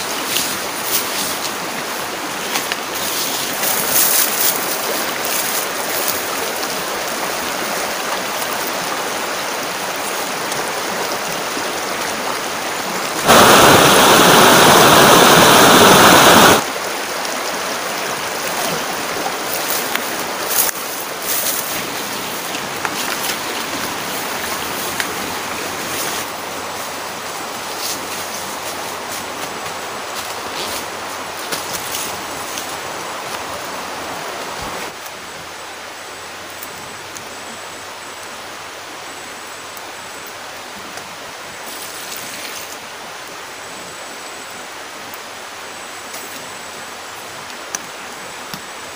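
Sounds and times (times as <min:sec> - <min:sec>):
river flowing over stones: 0:00.0 - 0:48.9
loud rushing noise: 0:13.2 - 0:16.6.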